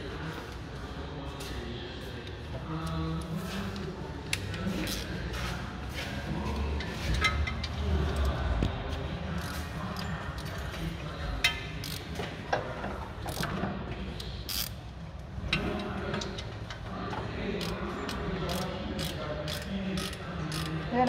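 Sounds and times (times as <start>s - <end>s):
ratchet-like clicks of hand tools: 11.4s - 12.1s, 13.3s - 13.6s, 14.5s - 14.8s, 17.6s - 20.8s.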